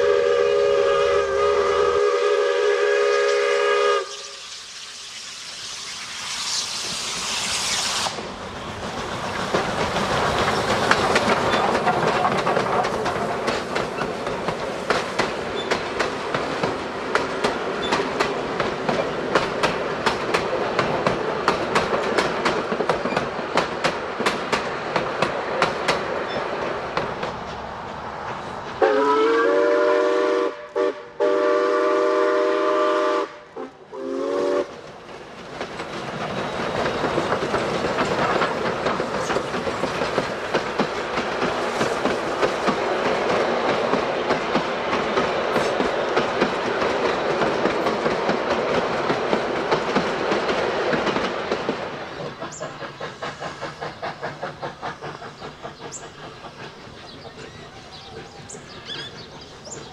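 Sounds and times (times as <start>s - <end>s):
steam whistle blasts: 0.0s - 4.9s, 28.8s - 34.7s
steam train clattering: 0.0s - 59.9s.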